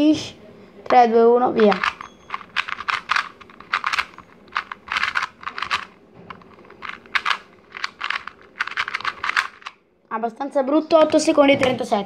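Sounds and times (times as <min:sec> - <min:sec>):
puzzle cube plastic clicks: 0:01.6 - 0:09.8.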